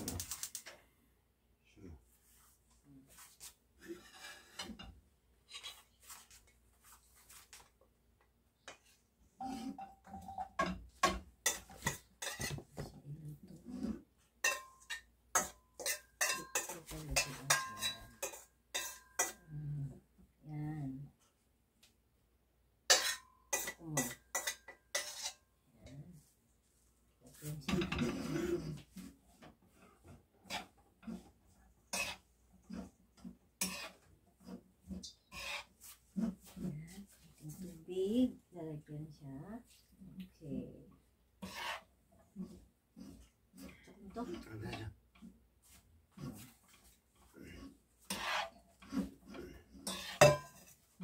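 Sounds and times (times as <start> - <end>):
metal bowl clattering and knocking: 9.4 - 13.0, 14.4 - 19.5, 22.9 - 25.4, 27.6 - 34.1, 48.1 - 51.0.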